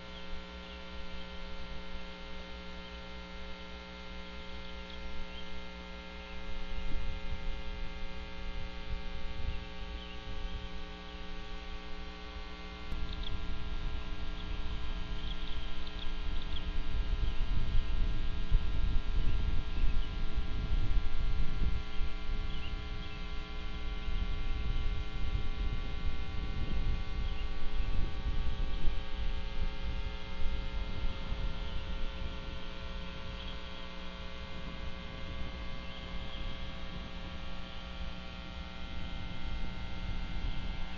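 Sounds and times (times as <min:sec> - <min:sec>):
electrical hum: 0:00.0 - 0:40.9.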